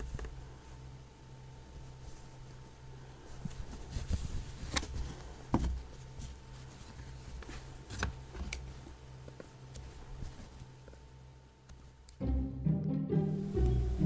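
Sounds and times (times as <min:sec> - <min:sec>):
low steady hum: 0:00.0 - 0:14.0
fabric rustling: 0:01.5 - 0:11.1.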